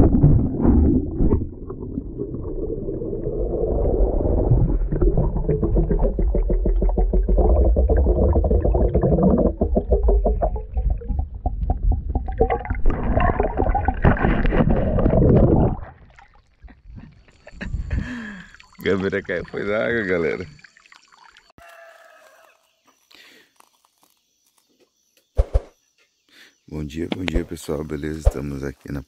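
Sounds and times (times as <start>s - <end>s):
deep low rumble: 0.0s - 15.9s
underwater gurgling and bubbling: 0.0s - 16.4s
constant crackle: 18.4s - 24.9s.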